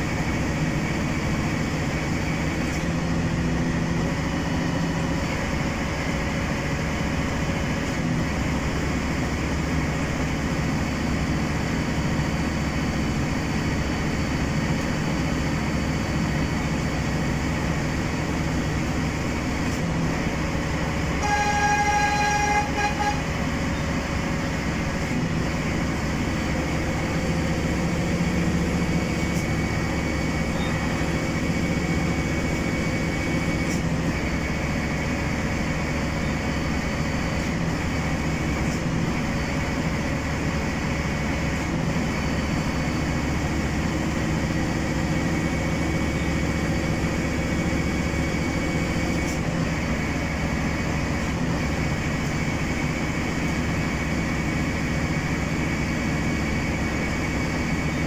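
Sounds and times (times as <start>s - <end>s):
train running rumble: 0.0s - 58.0s
train horn: 21.2s - 23.6s.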